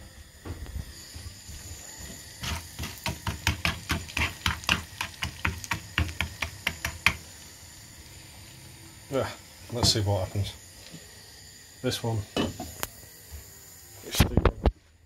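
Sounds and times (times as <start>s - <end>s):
butter and sugar bubbling: 0.9s - 11.4s.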